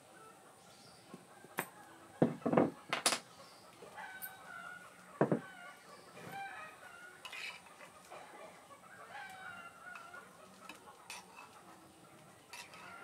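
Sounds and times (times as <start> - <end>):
birds calling: 0.0 - 13.0
spoon scraping clay pots: 7.2 - 7.9, 10.7 - 11.6, 12.4 - 13.0.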